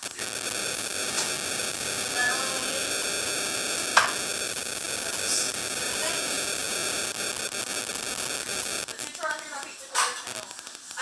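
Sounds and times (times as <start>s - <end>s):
static hiss: 0.0s - 11.0s.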